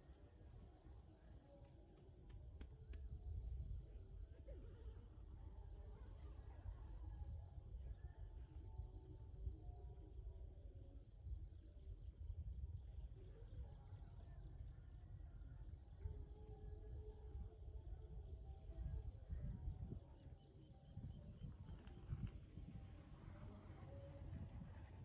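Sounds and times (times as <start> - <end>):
insect chirping: 0.2 - 4.3, 8.4 - 9.9, 10.6 - 25.0.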